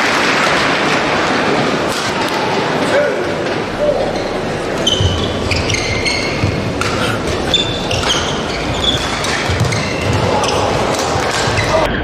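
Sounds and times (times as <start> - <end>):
crowd murmur: 0.0 - 12.0
shoes squeaking on court floor: 3.8 - 12.0
rackets striking shuttlecock: 4.9 - 12.0.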